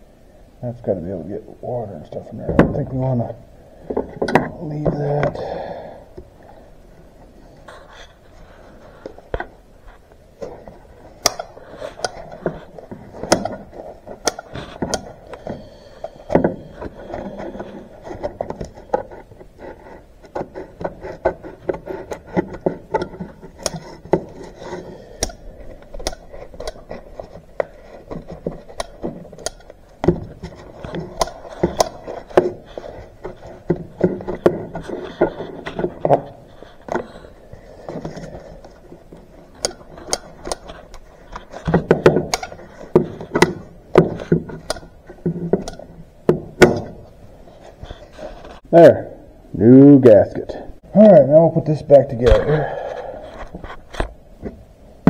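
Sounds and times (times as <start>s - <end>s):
metal sheet rustling: 16.6s - 48.7s.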